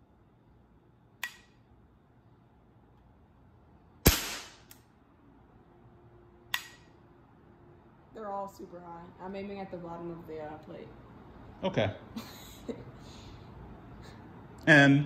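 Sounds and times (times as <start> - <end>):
air pistol shot: 4.0 - 4.8.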